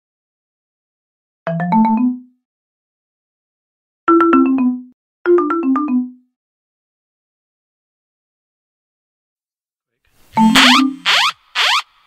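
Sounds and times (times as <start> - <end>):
electronic alert chime: 10.4 - 11.1.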